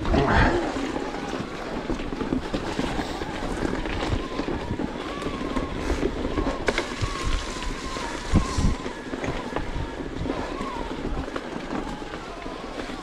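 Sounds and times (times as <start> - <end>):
faint wavering whine: 0.0 - 10.9
bike rattling: 0.0 - 13.0
tyres crunching over gravel: 0.0 - 13.0
wind noise on microphone: 0.0 - 13.0.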